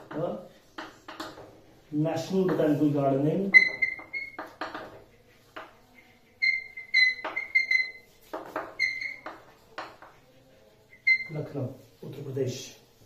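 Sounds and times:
chalk scratching on chalkboard: 0.0s - 13.0s
high chalk squeak: 2.5s - 11.6s.

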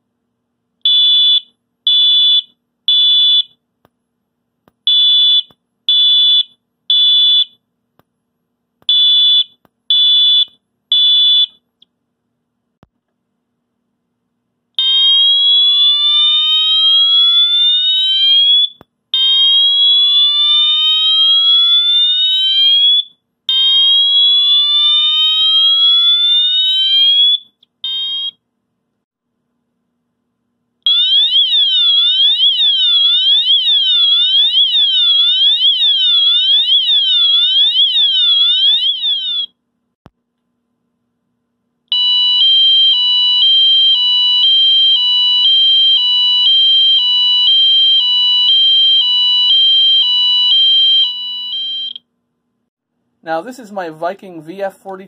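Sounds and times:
fire alarm horn whooping: 14.8s - 28.3s, 41.9s - 52.0s.

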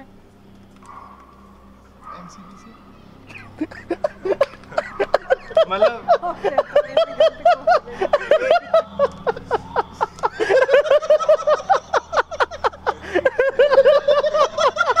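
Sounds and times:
man and woman laughing: 3.3s - 15.0s.

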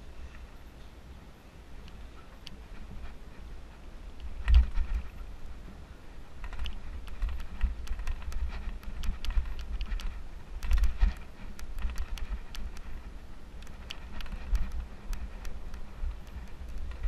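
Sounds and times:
mountain bike rolling on dirt trail: 2.4s - 17.0s
bike chain clicking and rattling: 4.2s - 5.4s, 6.3s - 17.0s.

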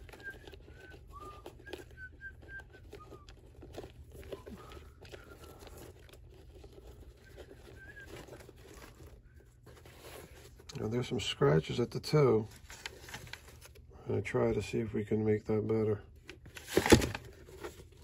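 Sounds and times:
faint whistled notes: 0.0s - 5.7s, 7.1s - 9.1s
shoelaces pulled through eyelets: 0.0s - 10.9s.

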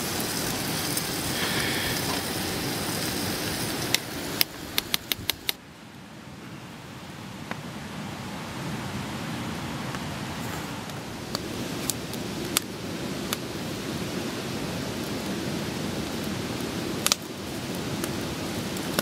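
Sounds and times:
even hiss: 0.0s - 5.7s
steady rushing noise: 0.0s - 19.0s.

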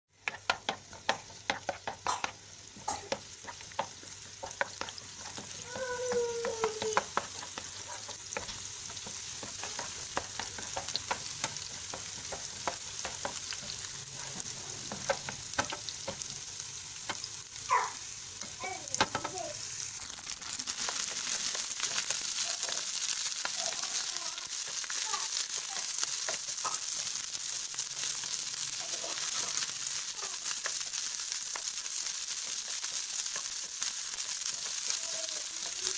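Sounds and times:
shallots sizzling in hot oil: 0.1s - 35.9s.

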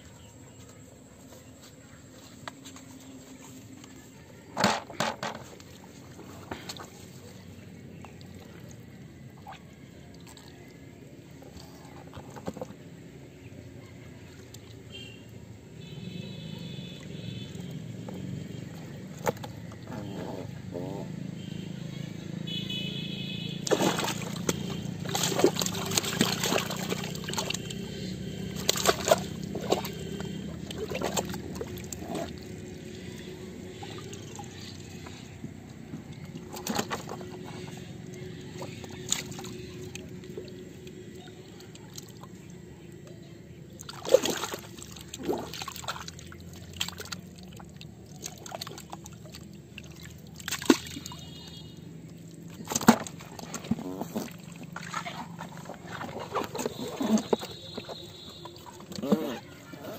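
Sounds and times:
fish slapping plastic bucket: 17.4s - 19.9s, 23.6s - 42.4s, 43.7s - 59.9s
fish splashing in water: 22.5s - 59.9s.

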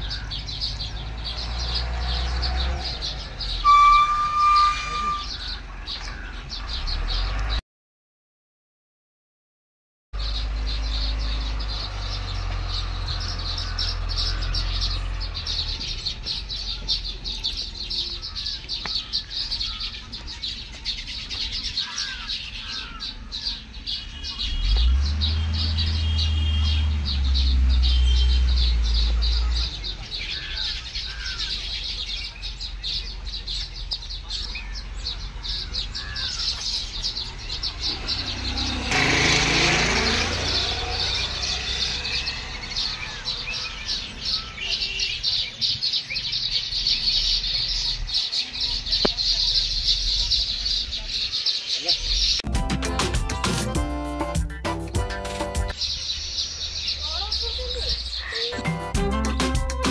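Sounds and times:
birds chattering and chirping: 0.0s - 7.6s, 10.2s - 59.9s.

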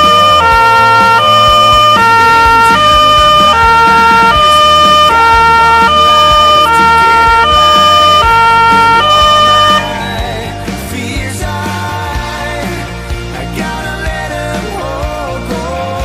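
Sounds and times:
two-tone fire truck siren: 0.0s - 10.5s.

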